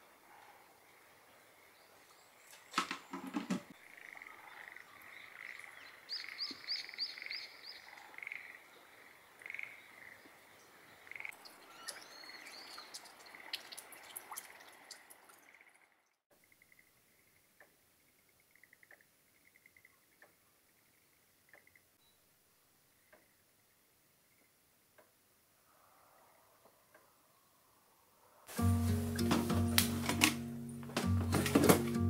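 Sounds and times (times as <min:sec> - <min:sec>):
birds chirping: 0:00.0 - 0:22.3
frogs calling in chorus: 0:03.7 - 0:15.8
sharp knocks: 0:29.2 - 0:32.0.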